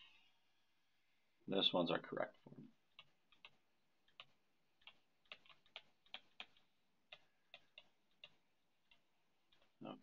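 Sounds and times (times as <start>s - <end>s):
stylus tapping on touchscreen: 2.4s - 9.8s.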